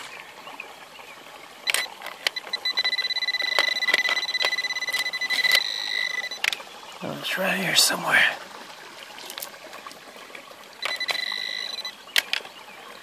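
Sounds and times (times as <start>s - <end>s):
water trickling: 0.0s - 13.0s
metal detector high beep: 1.7s - 6.4s, 10.8s - 12.0s
sharp clicks: 1.7s - 6.6s, 10.8s - 12.5s.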